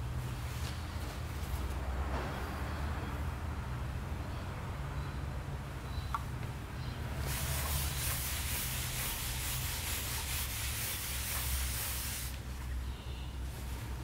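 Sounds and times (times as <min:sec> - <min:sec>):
cloth rubbing on wood: 0:07.3 - 0:12.4.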